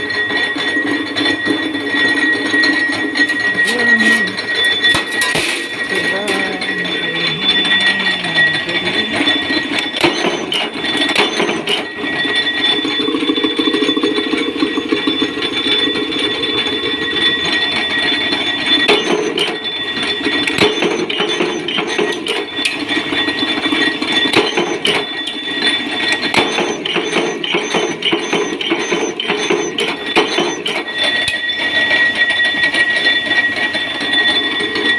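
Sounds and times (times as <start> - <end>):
steady high whine: 0.0 - 34.9
power press metallic clatter: 9.1 - 12.8, 18.3 - 31.8.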